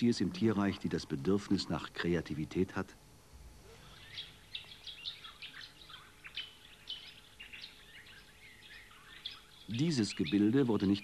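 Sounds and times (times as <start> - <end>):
birds chirping and whistling: 3.8 - 11.0.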